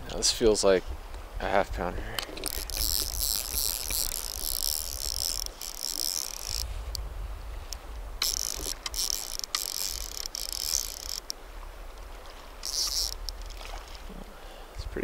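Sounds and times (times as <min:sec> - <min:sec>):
reel clicks: 0:02.0 - 0:13.8
fishing reel drag buzzing: 0:02.2 - 0:13.8
river water rushing: 0:03.6 - 0:14.7.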